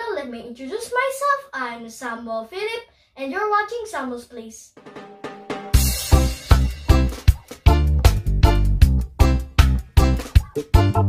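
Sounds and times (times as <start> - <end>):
steady drum beat: 4.8 - 11.0
low bass notes: 5.8 - 11.0.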